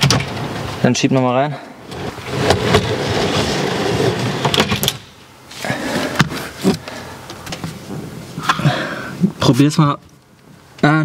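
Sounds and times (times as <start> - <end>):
wooden knocks and clunks: 0.0 - 0.7
drawer slides rumbling: 1.9 - 5.0.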